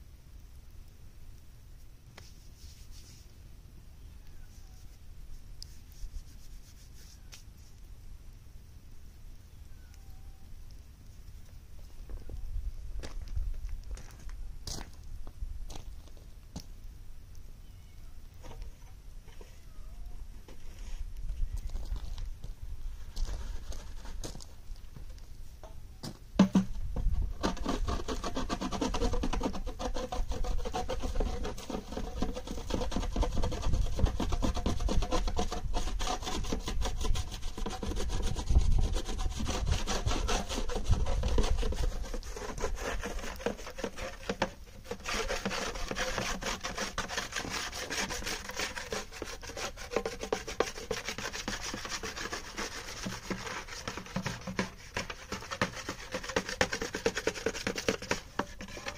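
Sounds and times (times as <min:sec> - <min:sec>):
dry clay scraping by hand: 0:02.1 - 0:03.4, 0:04.5 - 0:07.9, 0:22.9 - 0:25.3, 0:26.4 - 0:58.9.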